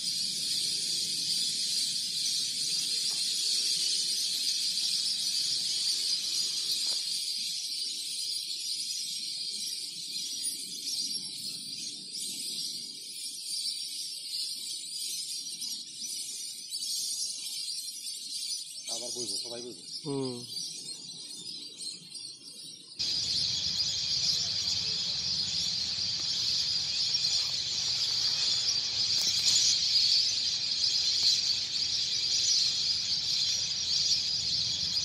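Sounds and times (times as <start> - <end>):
high-pitched chorus of animal calls: 23.0 - 35.0.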